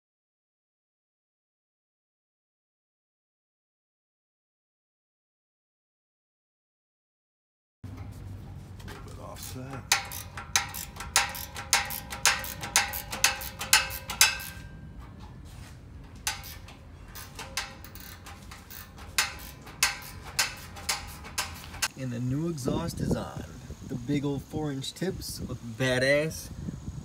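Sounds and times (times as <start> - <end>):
ratchet wrench clicking: 9.0 - 14.7, 16.2 - 21.9.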